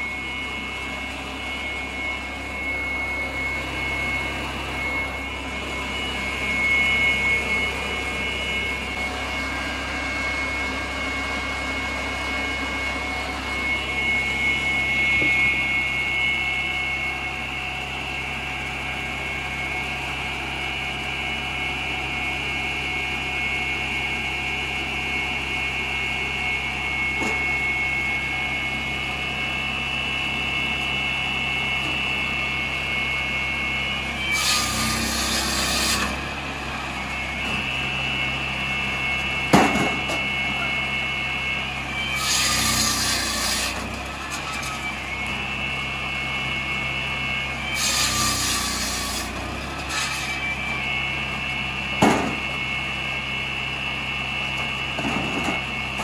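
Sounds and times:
circular saw engine whining: 0.0s - 56.0s
saw blade cutting log: 34.0s - 37.7s, 41.9s - 45.5s, 47.5s - 51.0s.

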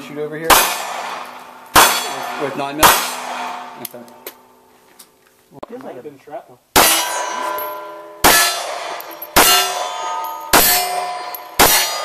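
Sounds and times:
steel target ringing: 0.5s - 3.9s, 6.8s - 12.0s.

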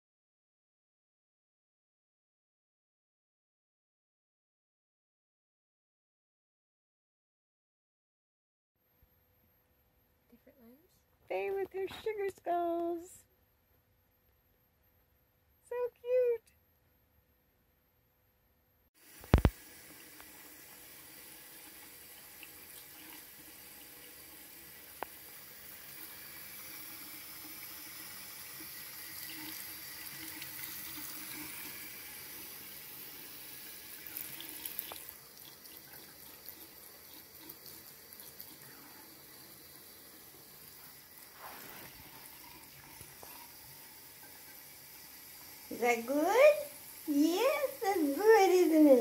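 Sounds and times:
faucet water trickling into sink: 19.0s - 49.0s.

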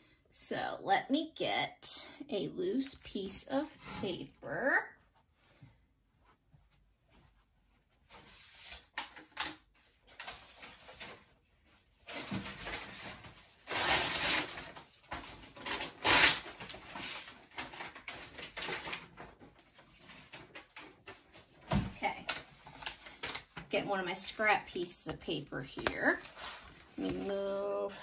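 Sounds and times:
paper rustling: 7.1s - 27.9s.

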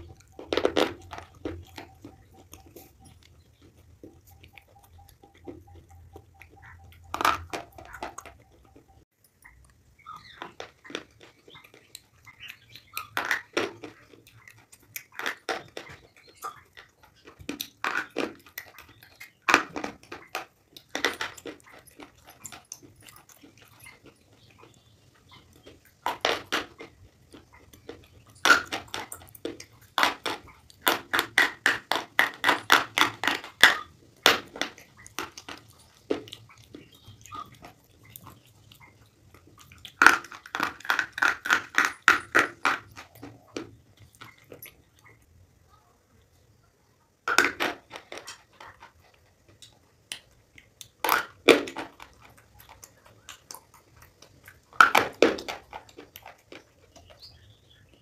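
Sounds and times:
crunching while chewing: 0.0s - 58.0s.

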